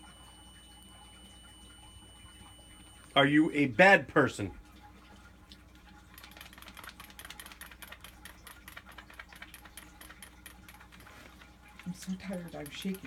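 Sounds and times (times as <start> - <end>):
low electrical hum: 0.0 - 13.0
rapid irregular clicking: 6.1 - 13.0.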